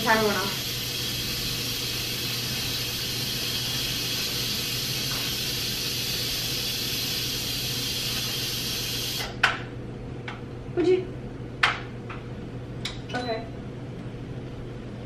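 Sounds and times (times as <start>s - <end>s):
pressure cooker steam hissing: 0.0s - 9.3s.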